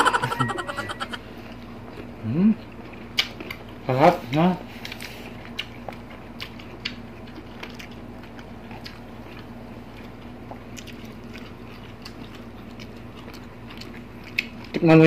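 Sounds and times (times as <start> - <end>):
steady low hum: 0.0 - 14.8
mouth chewing with wet smacks: 4.8 - 14.8.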